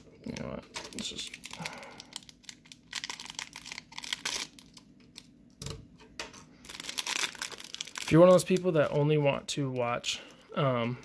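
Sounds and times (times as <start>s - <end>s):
cellophane crinkling: 0.0s - 5.3s, 6.5s - 11.0s.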